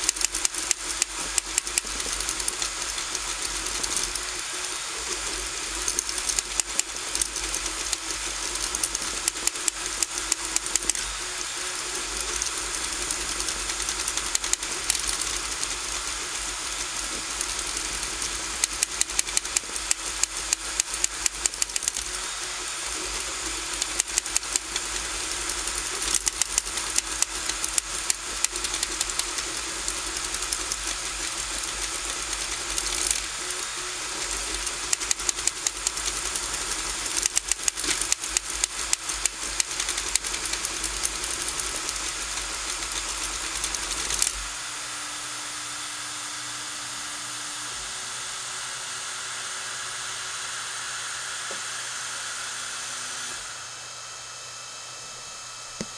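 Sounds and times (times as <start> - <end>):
rapid ticks: 0.0 - 44.6
stepper motors whining: 0.0 - 54.6.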